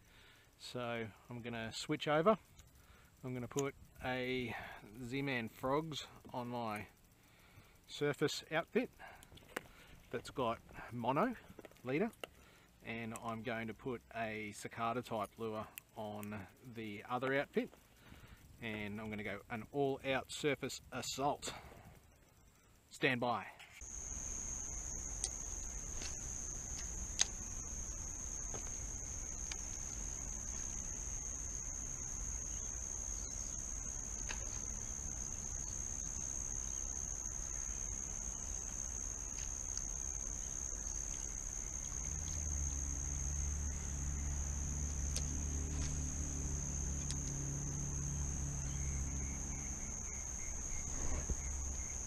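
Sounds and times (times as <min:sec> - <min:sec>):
shrill insect chorus: 0:00.0 - 0:52.0
low droning hum: 0:23.8 - 0:52.0.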